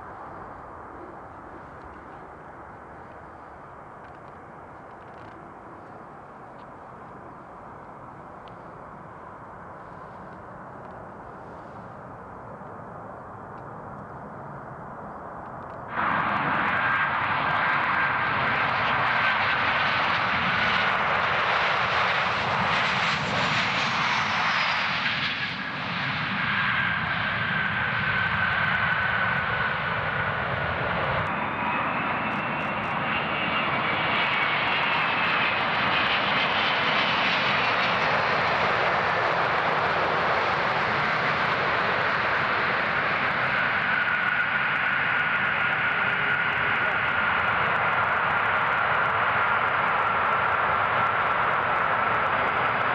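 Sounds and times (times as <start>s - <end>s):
jet engine noise with whine: 0.0s - 52.9s.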